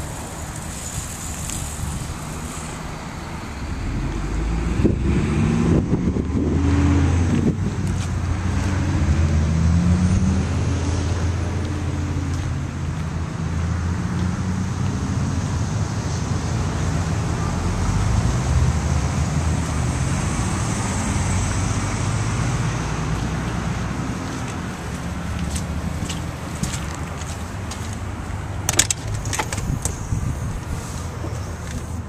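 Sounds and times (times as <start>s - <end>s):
constant hiss: 0.0s - 4.4s
vehicle rumble: 0.0s - 32.0s.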